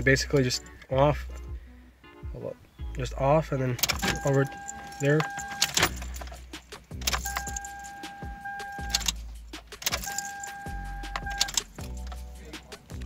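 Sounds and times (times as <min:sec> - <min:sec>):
ignition key jangling and clicking: 0:00.3 - 0:01.5, 0:03.7 - 0:12.5
fuel pump whine: 0:07.0 - 0:12.0.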